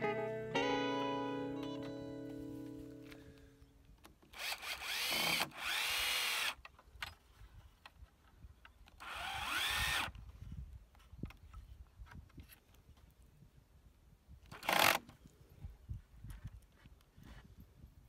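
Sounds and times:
cordless drill drilling into wood: 4.3s - 6.6s, 9.0s - 10.2s, 14.6s - 15.0s.

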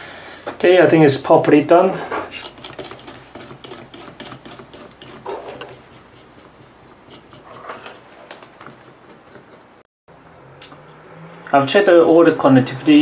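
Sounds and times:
cotton swab scrubbing circuit board: 2.3s - 9.8s.

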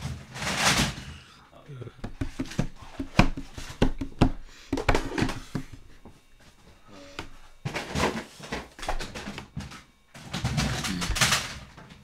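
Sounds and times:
plastic toy blasters clattering: 10.2s - 11.7s.

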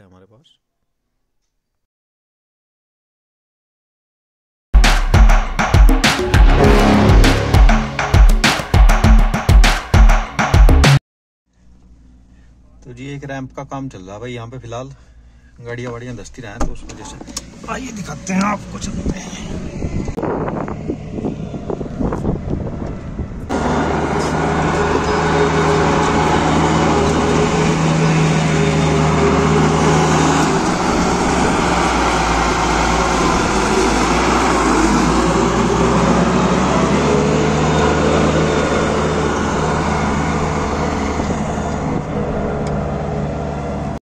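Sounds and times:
diesel engine running: 5.9s - 9.2s, 17.2s - 44.0s
grader scraping loose soil: 23.5s - 42.7s.

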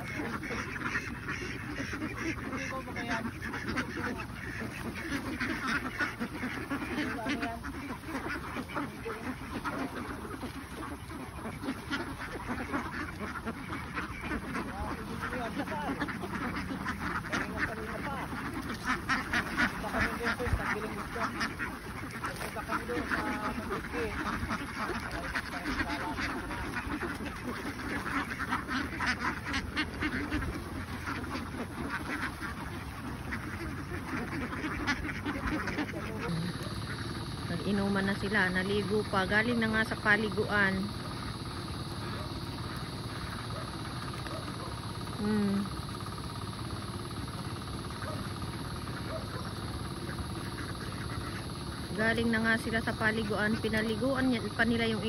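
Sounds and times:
flock of ducks quacking: 0.0s - 55.0s.

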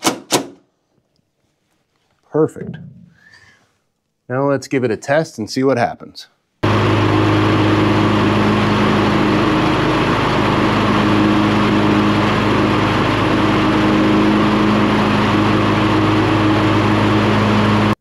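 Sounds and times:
riding mower engine running: 6.6s - 18.0s.

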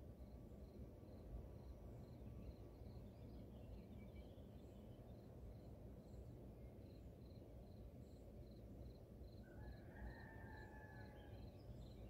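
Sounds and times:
distant rooster crowing: 9.4s - 11.5s.

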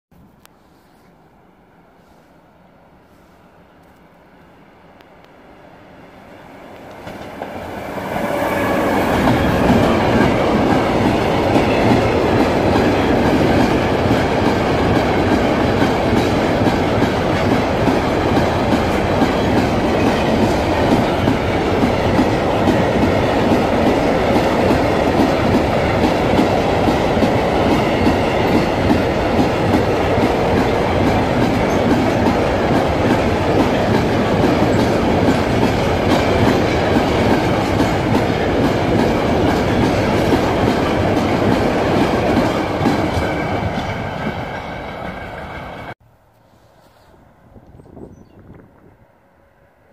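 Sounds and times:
electric locomotive passing: 1.0s - 46.0s, 48.4s - 49.9s
train wheels clattering over rails: 6.7s - 46.0s.

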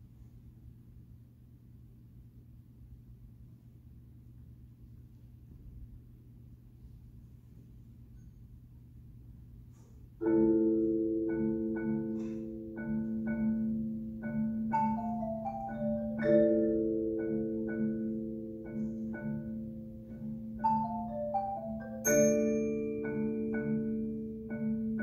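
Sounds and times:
marimbas and vibraphone playing: 10.2s - 25.0s.

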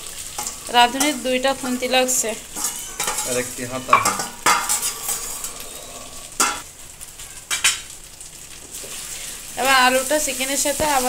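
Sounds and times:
food sizzling in a frying pan: 0.0s - 11.0s
spatula stirring: 0.1s - 6.6s
metal spoon scraping steel bowl: 2.5s - 5.8s.

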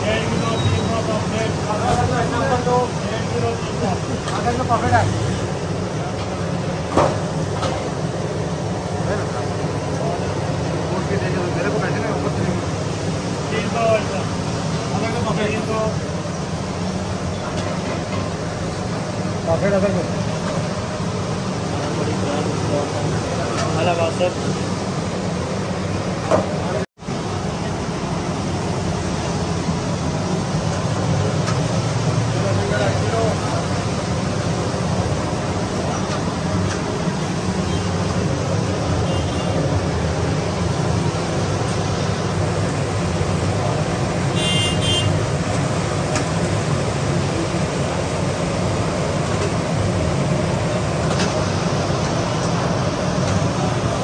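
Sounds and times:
oil bubbling in pans: 0.0s - 26.8s, 27.4s - 54.0s
busy restaurant din: 0.0s - 54.0s
street traffic rumble: 0.0s - 54.0s
short high horn toot: 44.4s - 45.2s.

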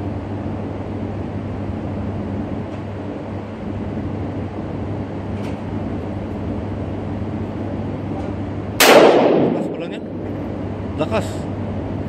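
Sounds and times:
mechanical hum and rumble: 0.0s - 12.0s.

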